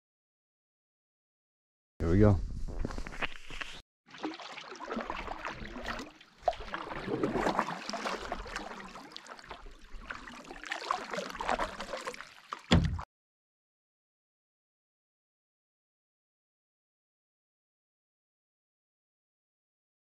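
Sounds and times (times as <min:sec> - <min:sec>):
paddle strokes splashing: 0:04.1 - 0:12.8
thump on canoe: 0:12.7 - 0:13.0.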